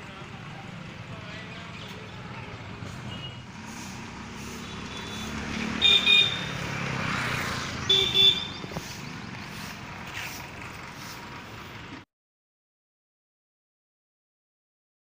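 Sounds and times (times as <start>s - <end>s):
traffic noise: 0.0s - 12.1s
vehicle horn toots: 3.1s - 3.5s, 4.4s - 6.6s, 7.8s - 8.7s.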